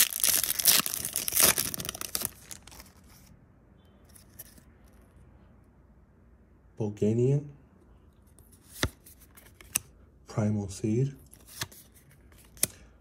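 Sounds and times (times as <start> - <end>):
foil wrapper crinkling: 0.0 - 3.0.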